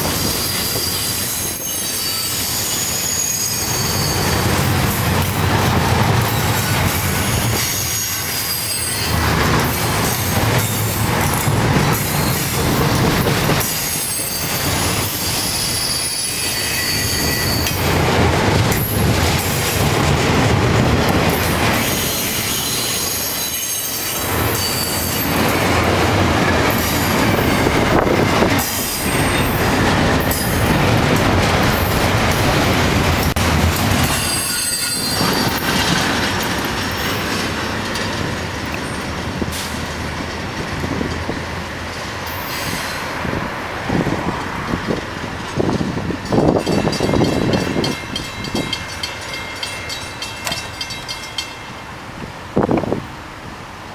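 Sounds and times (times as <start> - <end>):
high wheel squeal: 0.0 - 5.1, 6.3 - 9.3, 10.0 - 12.6, 13.6 - 17.8, 21.7 - 25.5, 34.0 - 35.9, 42.3 - 43.1
train wheels on rails: 0.0 - 53.9.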